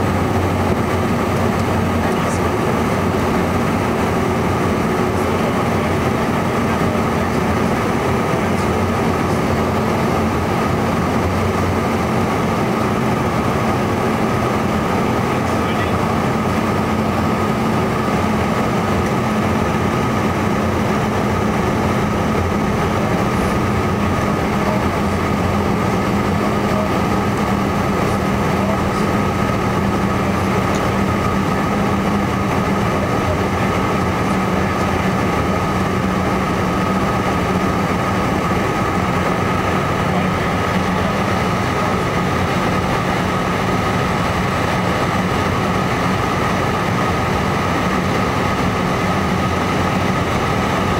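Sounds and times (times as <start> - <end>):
high engine whine: 0.0 - 50.9
jet cabin drone: 0.0 - 50.9.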